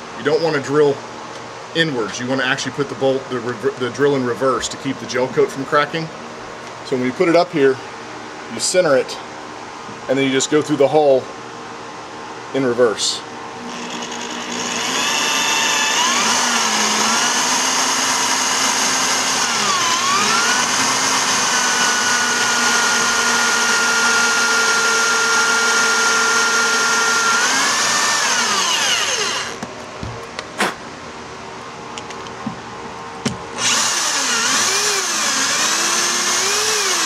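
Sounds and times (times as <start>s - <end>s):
electric drill whining: 13.6s - 29.6s, 33.6s - 37.0s.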